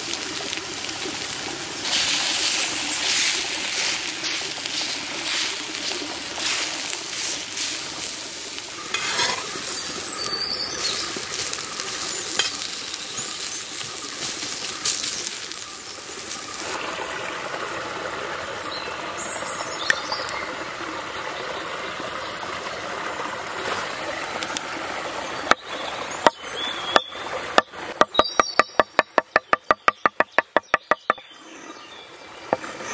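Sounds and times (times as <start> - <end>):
steak sizzling in a pan: 0.0 - 16.8
blade scraping meat: 8.9 - 9.5
knife chopping on wooden board: 27.0 - 31.2.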